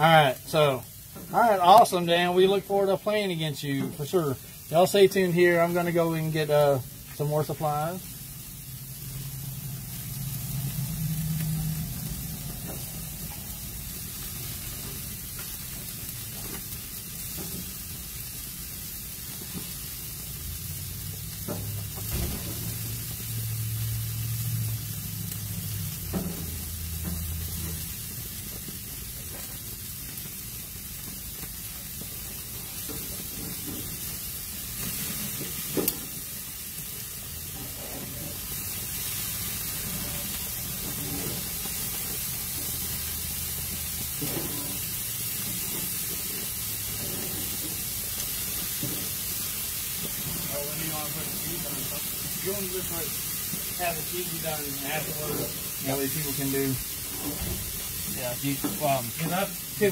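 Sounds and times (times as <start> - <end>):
meat sizzling on a grill: 0.0 - 59.9.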